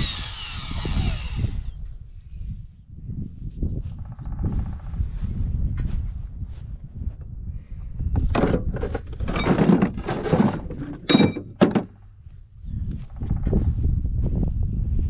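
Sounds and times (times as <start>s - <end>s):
wind buffeting microphone: 0.0s - 11.1s, 12.0s - 15.0s
rustling and clattering: 8.2s - 12.0s.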